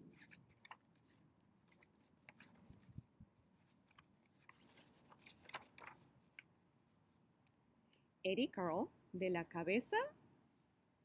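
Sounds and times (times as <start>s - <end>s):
paper book rustling: 0.1s - 7.2s.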